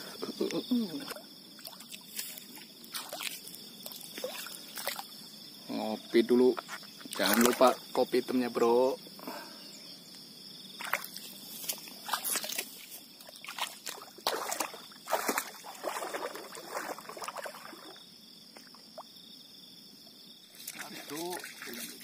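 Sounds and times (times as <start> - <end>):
water sloshing around wading legs: 1.1 - 5.2, 10.8 - 18.0, 20.5 - 22.0.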